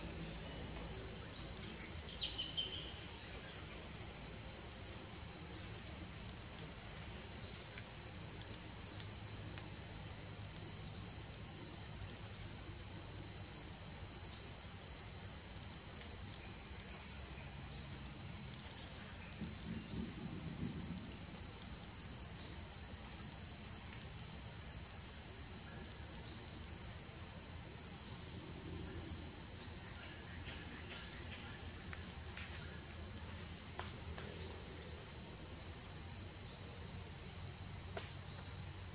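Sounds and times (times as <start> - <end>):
insects buzzing: 0.0 - 11.2, 11.8 - 38.9.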